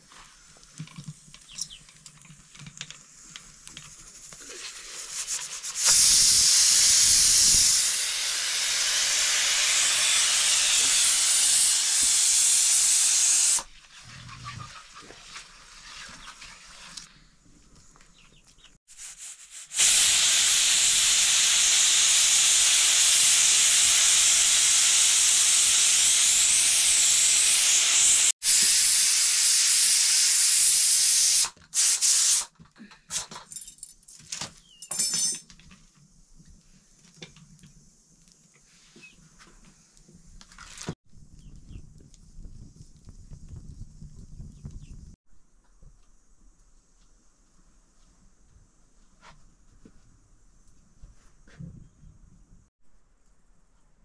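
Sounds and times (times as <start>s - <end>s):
food hissing over fire: 3.9s - 13.6s, 19.2s - 32.4s.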